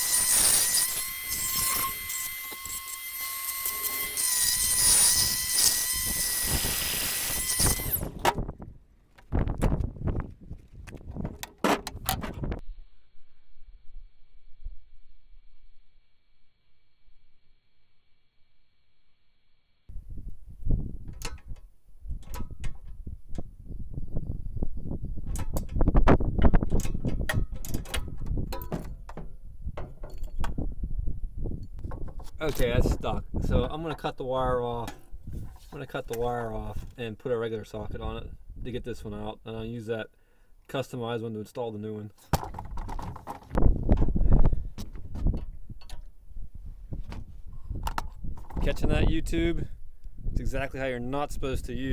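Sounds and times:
die grinder cutting metal: 0.0 - 8.2.

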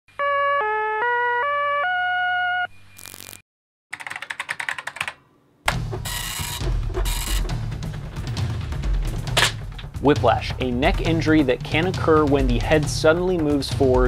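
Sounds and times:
keyboard typing clicks: 3.9 - 7.6
dot-matrix printer buzzing: 5.7 - 7.8
electronic beeping melody: 5.8 - 7.6.

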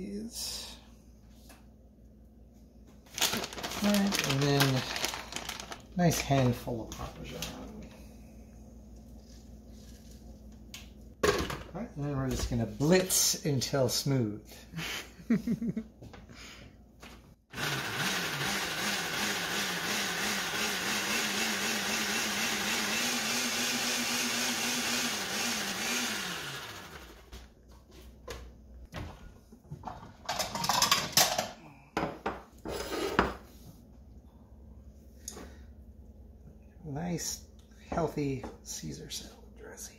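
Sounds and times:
blender running: 17.5 - 27.3.

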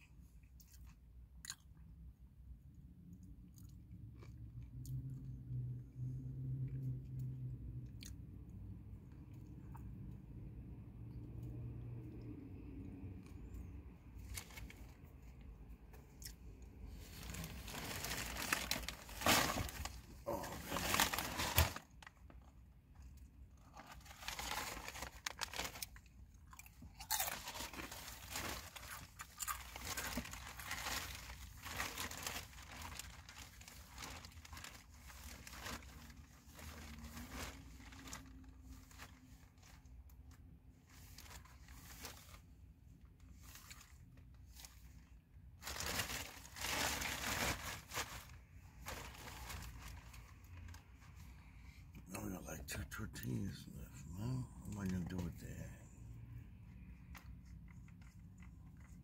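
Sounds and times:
crunching and chewing: 0.4 - 5.5, 6.6 - 10.1, 11.2 - 48.1, 56.8 - 59.0
plastic bag rustling: 16.8 - 22.5, 23.6 - 26.0, 27.3 - 39.8, 40.9 - 42.5, 43.3 - 51.3.

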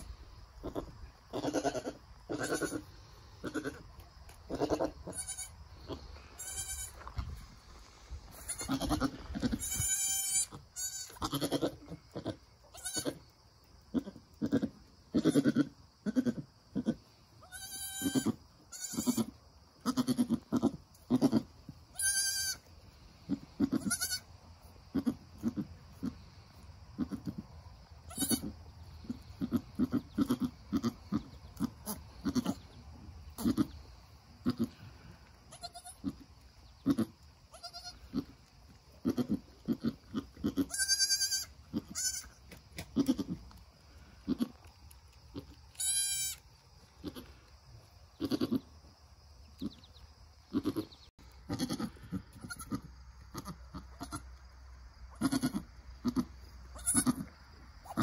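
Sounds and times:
goat giving low calls: 0.6 - 3.9, 4.5 - 7.1, 8.3 - 13.3, 13.9 - 22.6, 23.3 - 24.3, 24.9 - 26.2, 28.1 - 32.7, 33.3 - 33.8, 34.4 - 36.2, 36.8 - 38.4, 39.0 - 43.6, 44.2 - 44.6, 48.2 - 48.7, 50.5 - 54.2, 55.1 - 58.0
high-pitched bleats: 0.6 - 3.9, 4.5 - 7.1, 8.3 - 13.2, 13.9 - 22.7, 23.3 - 24.3, 24.9 - 26.2, 27.0 - 27.4, 28.1 - 28.5, 29.4 - 32.7, 33.4 - 33.8, 34.4 - 36.2, 36.8 - 38.4, 39.0 - 43.4, 44.2 - 44.6, 45.3 - 46.4, 47.0 - 47.4, 48.2 - 48.7, 50.5 - 54.4, 55.1 - 58.0.

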